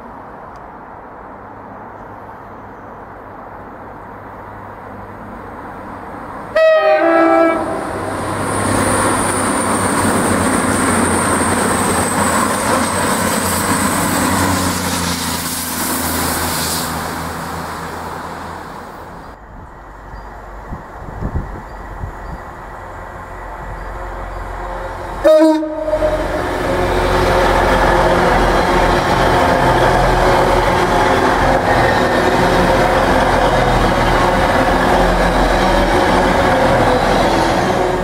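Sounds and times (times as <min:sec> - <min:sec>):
train passing at speed: 0:00.0 - 0:38.0
two-tone train horn: 0:06.5 - 0:08.2, 0:24.6 - 0:27.1.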